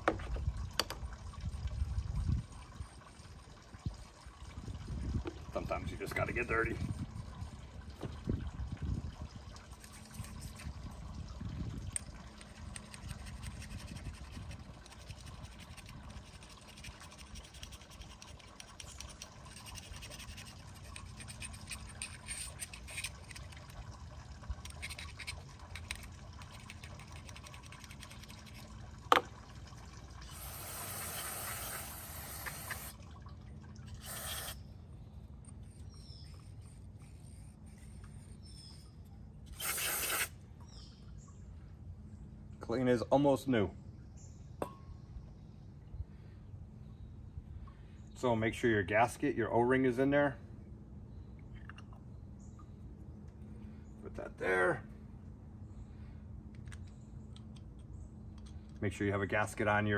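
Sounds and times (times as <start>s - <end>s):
liquid trickling: 0.0s - 41.6s
parts swished in liquid: 9.6s - 11.0s, 12.3s - 29.3s
aerosol spray hiss: 30.3s - 32.9s, 34.0s - 34.6s, 39.6s - 40.3s.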